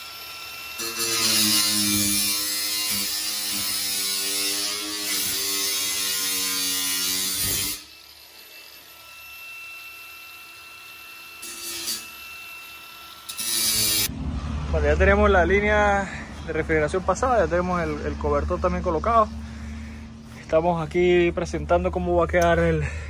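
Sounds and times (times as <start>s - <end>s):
cut-off tool cutting sheet metal: 0.0s - 14.1s.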